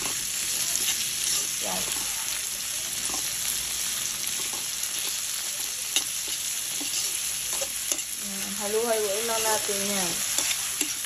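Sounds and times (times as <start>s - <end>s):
metal spatula scraping a pan: 0.0s - 2.2s, 5.9s - 8.6s
vegetables sizzling in hot oil: 0.0s - 11.0s.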